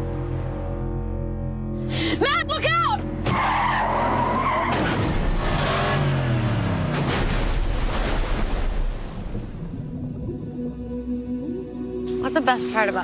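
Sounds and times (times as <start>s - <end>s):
car tyres skidding: 3.2s - 6.2s.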